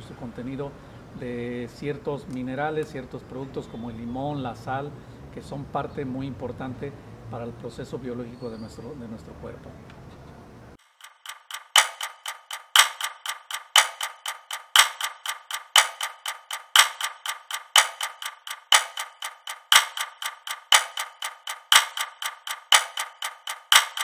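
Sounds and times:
rhythmic clicking percussion: 10.8s - 24.0s.

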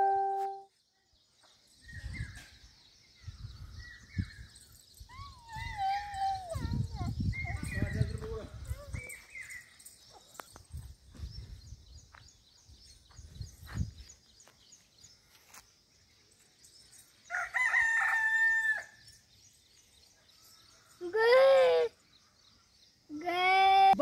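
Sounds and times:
small birds chirping: 0.0s - 24.0s
rooster crowing: 17.3s - 19.0s.

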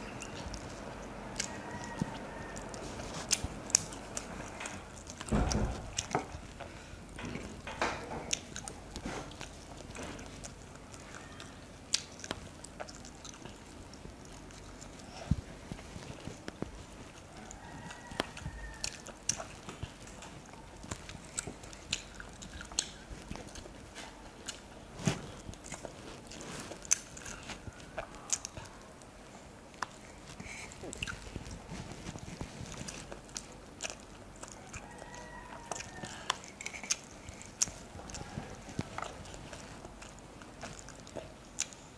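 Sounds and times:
person chewing with mouth smacks: 0.0s - 41.9s
fingers squishing rice: 8.4s - 41.9s.

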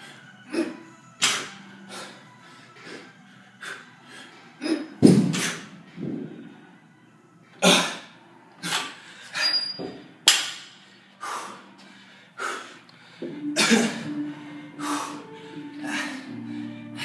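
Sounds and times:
background music with low notes: 0.0s - 17.0s
man breathing hard: 1.9s - 4.6s, 7.8s - 9.6s, 10.8s - 17.0s.

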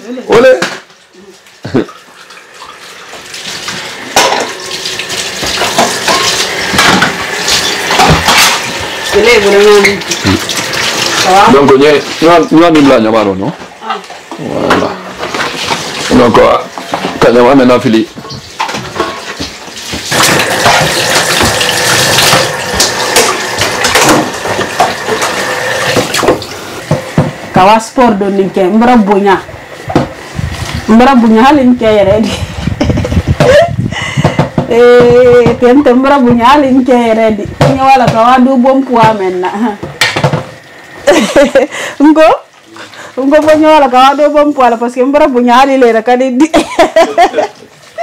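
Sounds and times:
tap water running into sink: 0.4s - 27.6s
dishes and utensils clinking: 4.0s - 11.3s, 18.2s - 27.4s.

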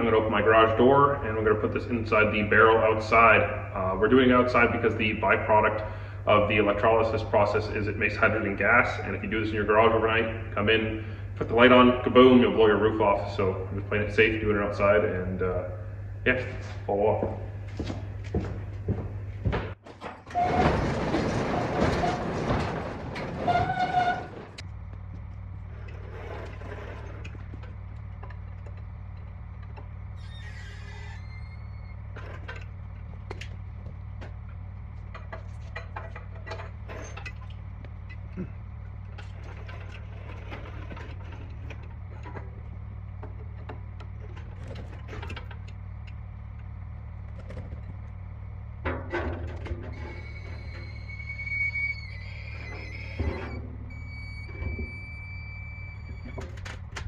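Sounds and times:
steady low hum: 0.0s - 57.0s
garage door rattling along track: 19.5s - 24.7s, 25.5s - 57.0s
garage door squeal: 20.0s - 24.6s, 25.7s - 28.3s, 30.1s - 32.7s, 35.1s - 38.6s, 39.2s - 42.5s, 49.0s - 57.0s
chain and metal rattling: 32.0s - 48.5s
metal clunks: 32.1s - 50.8s.

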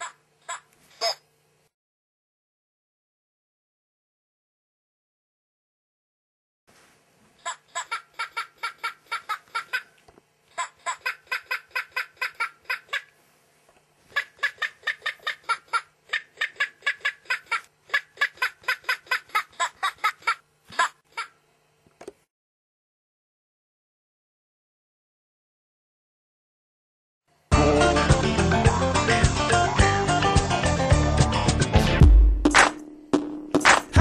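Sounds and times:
toy chicken electronic cackle: 0.0s - 1.2s, 7.4s - 13.1s, 14.1s - 21.4s.

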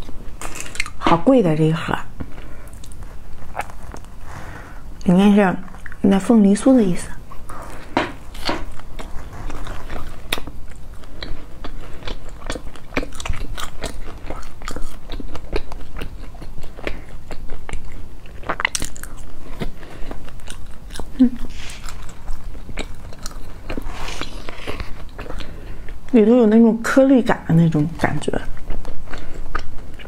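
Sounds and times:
chewing with mouth clicks: 2.2s - 4.2s, 5.0s - 6.0s, 7.3s - 26.1s, 28.0s - 30.0s.

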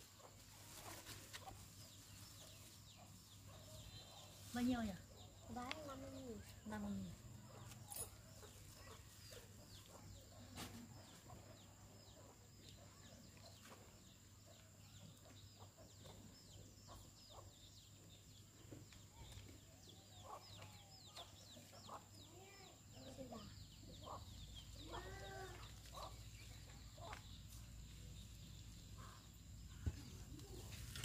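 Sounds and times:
chickens chirping: 23.6s - 27.6s.

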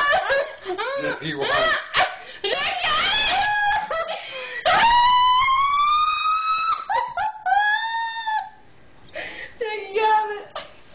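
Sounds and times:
women laughing: 0.0s - 5.5s, 6.1s - 8.6s.

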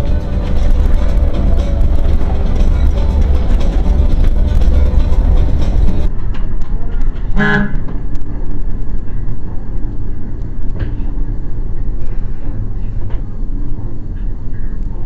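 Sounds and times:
bus engine and road rumble: 0.0s - 15.0s
short horn toot: 7.4s - 7.9s.

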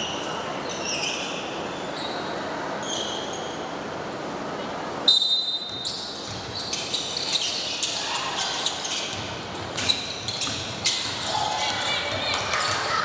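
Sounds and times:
sneakers squeaking: 0.0s - 3.8s, 5.0s - 13.0s
basketball bouncing: 5.7s - 6.8s, 9.0s - 13.0s.

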